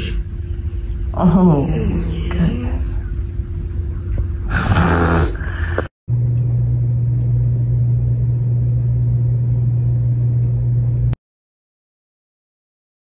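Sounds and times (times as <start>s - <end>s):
loud low hum with rumble: 0.0s - 11.2s.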